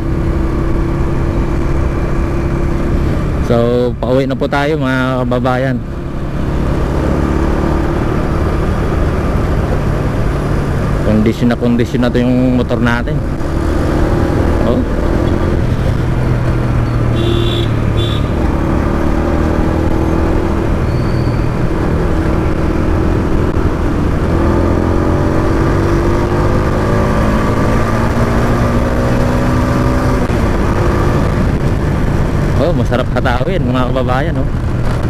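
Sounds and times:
road and wind noise: 0:00.0 - 0:35.0
motorcycle engine running: 0:12.3 - 0:27.3.

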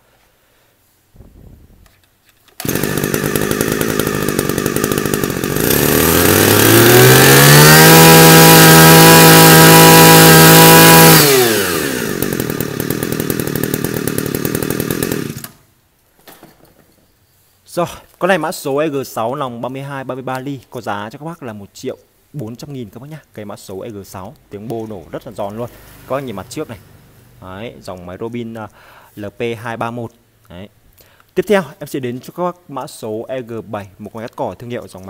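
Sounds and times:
brush cutter engine revving: 0:02.6 - 0:15.6, 0:24.6 - 0:28.1.

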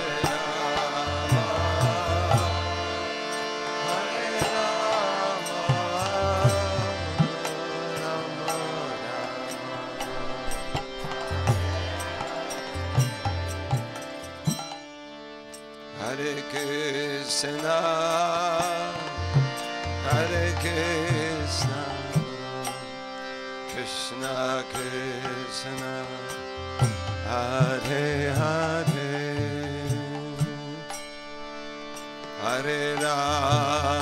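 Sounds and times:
person singing ornamented chant: 0:00.0 - 0:14.6, 0:15.6 - 0:34.0
metallic percussion strokes: 0:00.0 - 0:15.7
steady drone: 0:00.0 - 0:34.0.

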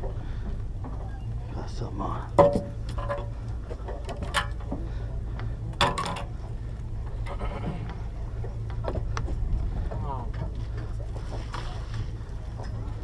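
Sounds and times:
gear knocking against boat: 0:00.0 - 0:04.9
boat engine humming: 0:00.0 - 0:13.0.

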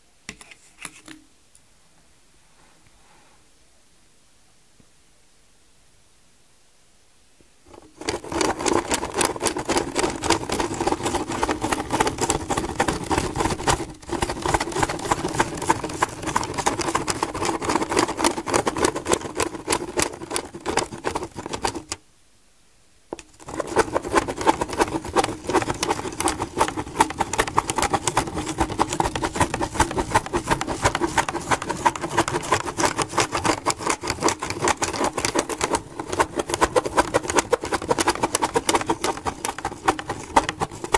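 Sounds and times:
plastic gear clicking rattle: 0:07.7 - 0:22.0, 0:23.2 - 0:40.9
pen scratching on paper: 0:08.0 - 0:21.8, 0:23.4 - 0:40.9.

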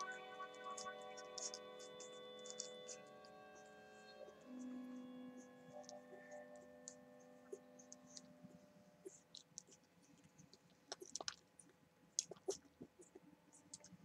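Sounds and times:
faint steady hum: 0:00.0 - 0:14.0
puppies suckling wet clicking: 0:10.5 - 0:13.9.

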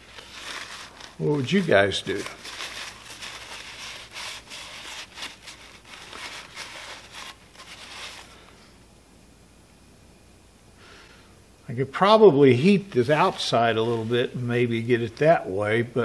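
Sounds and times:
towel rubbing metal part: 0:00.0 - 0:08.4.

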